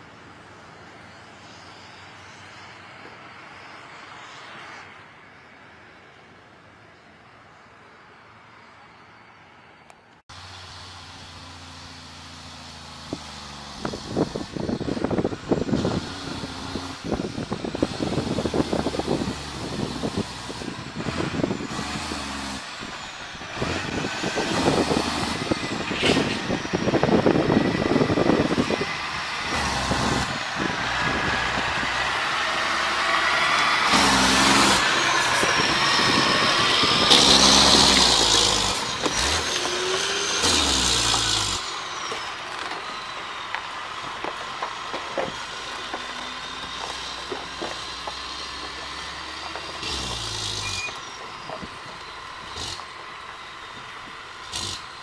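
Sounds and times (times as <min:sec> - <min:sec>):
diesel truck engine: 0:00.0 - 0:55.0
tyres crackling on gravel: 0:10.4 - 0:55.0.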